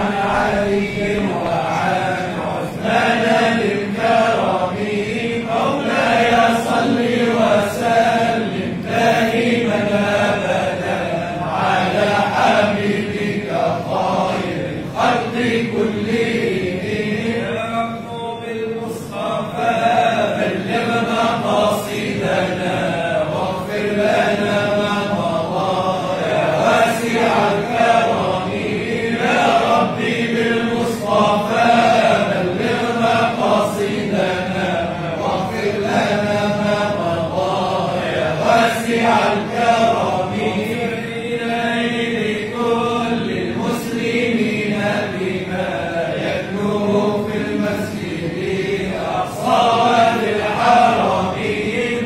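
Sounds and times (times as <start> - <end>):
men chanting together: 0.0 - 52.0.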